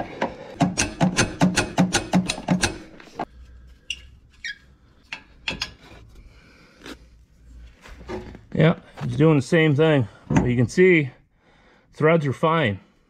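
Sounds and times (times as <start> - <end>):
hand ratchet clicking: 0.6 - 3.0.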